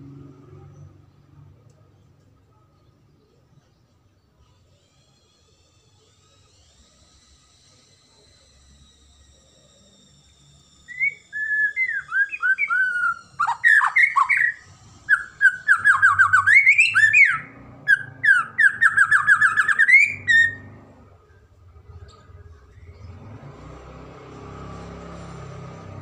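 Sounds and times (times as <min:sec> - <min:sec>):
bird singing whistles and trills: 0:08.5 - 0:20.9.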